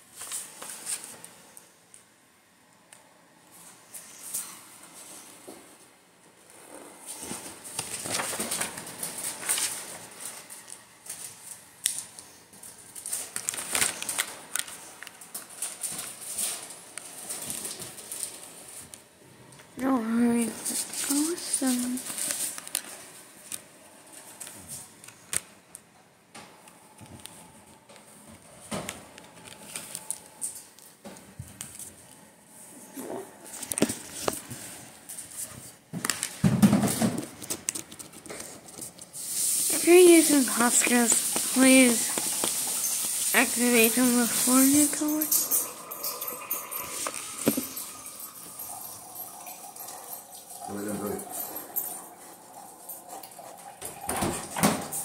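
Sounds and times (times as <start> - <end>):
hand handling a marker: 37.2 - 39.1.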